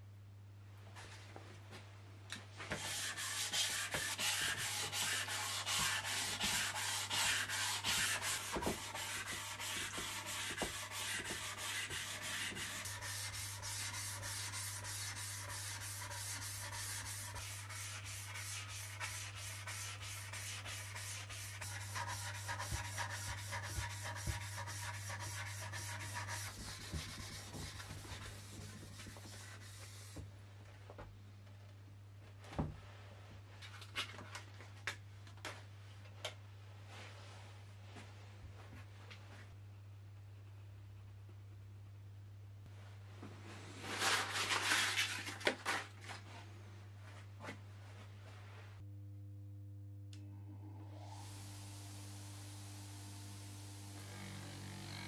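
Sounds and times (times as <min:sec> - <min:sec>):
sanding metal with wet sandpaper: 0:02.8 - 0:30.2.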